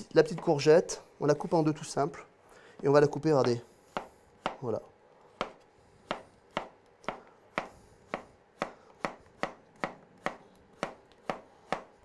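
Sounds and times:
knife chopping on wooden board: 3.4 - 4.7, 5.4 - 12.0.

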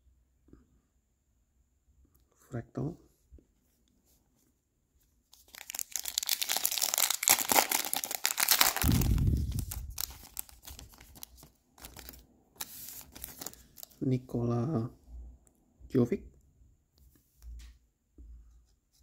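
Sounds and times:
foil wrapper crinkling and tearing: 5.4 - 14.0.

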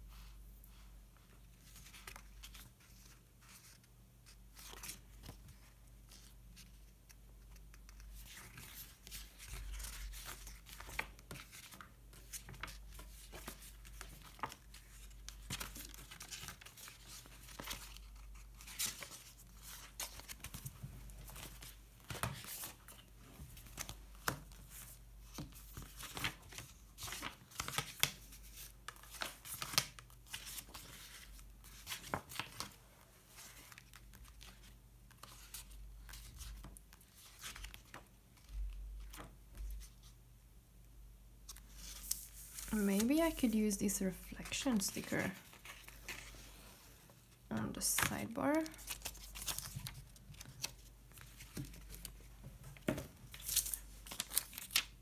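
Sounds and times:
sticker sheets crinkling: 4.5 - 40.0, 47.6 - 55.0.

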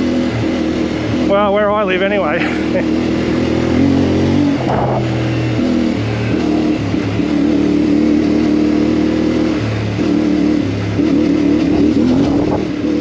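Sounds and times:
motorcycle engine running: 0.0 - 13.0
wind rush: 3.2 - 6.4, 11.4 - 13.0.

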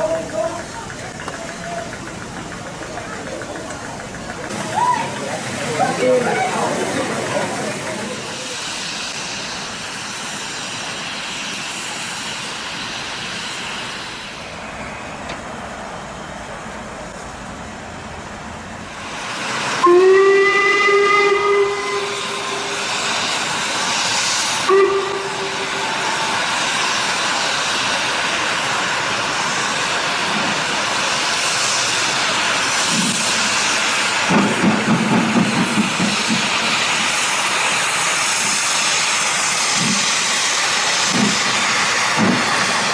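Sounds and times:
locomotive exhaust beat: 0.0 - 10.3, 19.8 - 42.9
steam hissing: 0.0 - 42.9
steam whistle: 19.8 - 23.0, 24.6 - 26.4.

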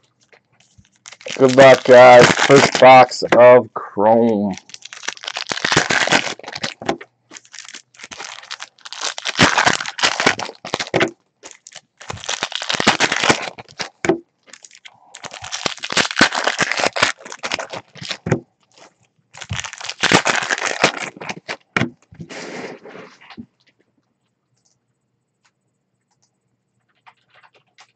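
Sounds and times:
foil wrappers tearing and crinkling: 0.2 - 21.9.

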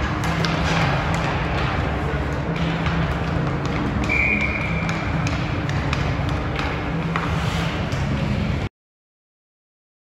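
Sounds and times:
hockey sticks and pucks clicking: 0.0 - 8.5
steady hum: 0.0 - 8.7.

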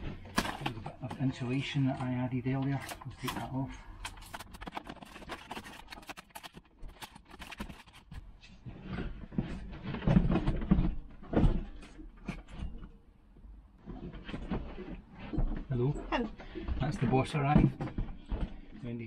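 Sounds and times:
small clicks and crackles: 0.0 - 12.9
fridge scraping: 0.0 - 13.0
heavy knocks and bumps: 8.6 - 12.9, 13.8 - 19.0.

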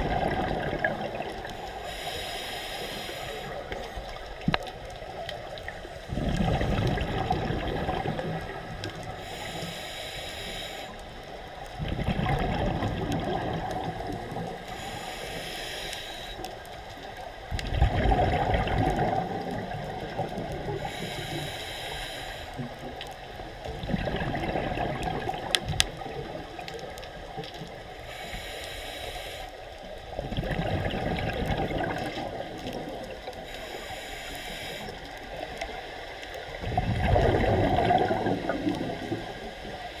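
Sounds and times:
exhaled bubbles underwater: 0.0 - 2.2, 3.2 - 9.5, 11.6 - 14.9, 17.4 - 21.6, 22.6 - 28.0, 30.0 - 33.5, 34.9 - 40.0
diver inhaling through regulator: 1.5 - 3.9, 9.1 - 11.0, 14.6 - 16.4, 20.8 - 22.6, 28.0 - 29.6, 33.4 - 35.1.

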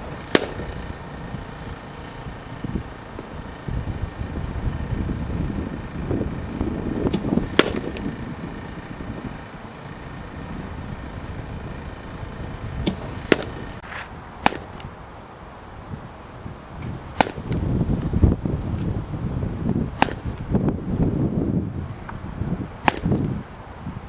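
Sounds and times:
softball bat striking balls: 0.0 - 3.7, 7.0 - 9.3, 12.8 - 14.9, 17.1 - 17.6, 20.0 - 20.4, 22.8 - 23.4
wind rumbling on microphone: 0.0 - 24.0.

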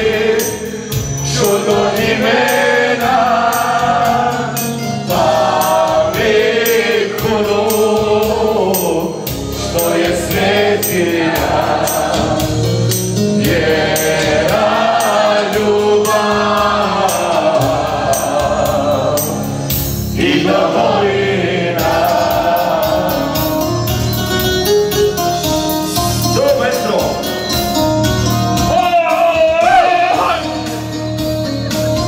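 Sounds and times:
amplified music with beat: 0.0 - 20.7, 21.7 - 32.0
men singing together: 0.0 - 23.9, 29.2 - 30.8.

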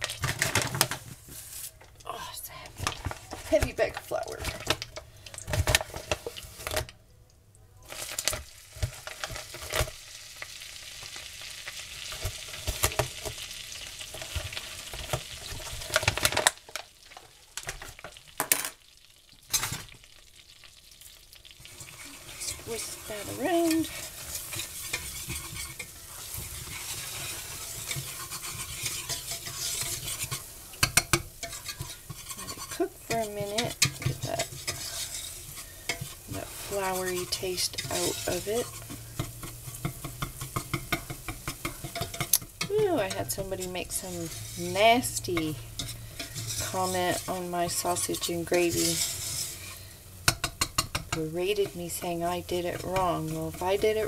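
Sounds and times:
butter sizzling in a saucepan: 0.0 - 6.9, 7.8 - 54.0
whisk clicking and scraping pan: 2.8 - 6.9, 21.4 - 54.0.

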